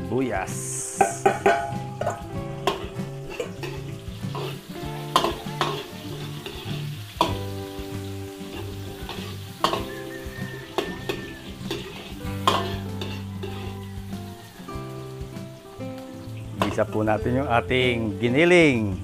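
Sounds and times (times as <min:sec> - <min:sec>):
onions sizzling in oil: 0:00.2 - 0:18.8
utensil knocking against pan: 0:01.0 - 0:04.5, 0:05.1 - 0:05.9, 0:09.1 - 0:13.7.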